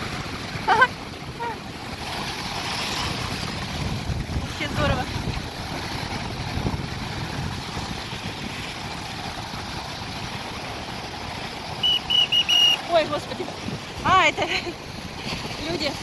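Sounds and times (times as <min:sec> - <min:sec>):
wind on microphone: 0:00.0 - 0:10.1
surf breaking on shore: 0:00.0 - 0:16.0
whistle short blasts: 0:11.8 - 0:12.9.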